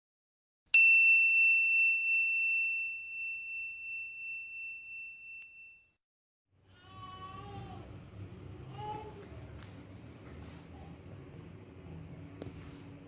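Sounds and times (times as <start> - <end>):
high bell-like ding: 0.8 - 6.0.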